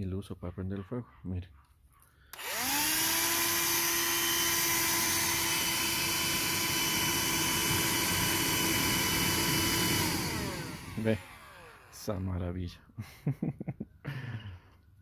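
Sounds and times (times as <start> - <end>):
handheld vacuum motor whining: 2.3 - 12.1.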